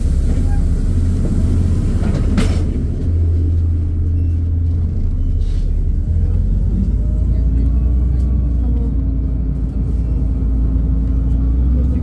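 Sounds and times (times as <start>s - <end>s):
bus engine idling: 0.0s - 12.0s.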